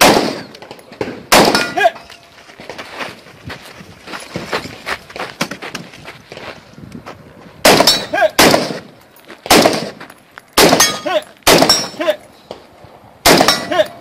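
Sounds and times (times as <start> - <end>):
rifle shots: 0.0 - 0.6, 1.3 - 1.8, 7.6 - 8.9, 9.5 - 10.0, 10.6 - 12.0, 13.2 - 13.7
steel target ringing: 10.8 - 12.0, 13.3 - 14.0.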